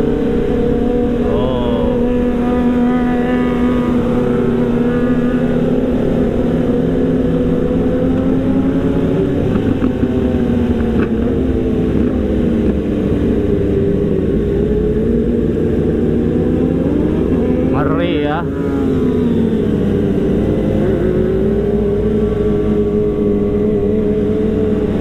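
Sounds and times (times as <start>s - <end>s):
motorcycle engine running: 0.0s - 25.0s
other motorcycles riding nearby: 0.0s - 25.0s.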